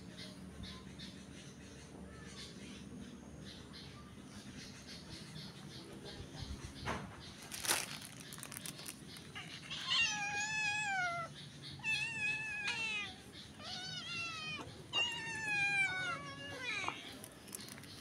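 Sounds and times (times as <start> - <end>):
cat meowing: 9.4 - 17.3.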